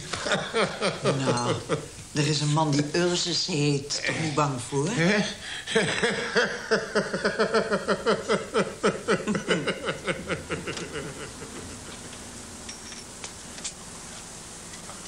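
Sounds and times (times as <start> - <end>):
man laughing heartily: 0.0 - 1.9, 5.6 - 12.0.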